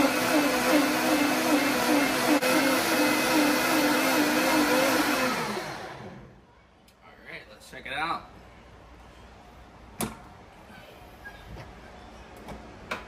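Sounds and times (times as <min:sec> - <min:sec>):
blender motor whine: 0:00.0 - 0:06.3.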